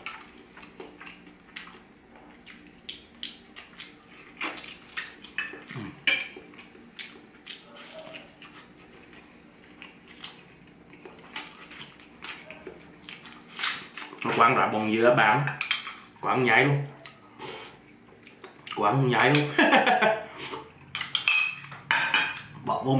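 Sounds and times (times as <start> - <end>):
wet chewing and mouth smacks: 0.0 - 14.3.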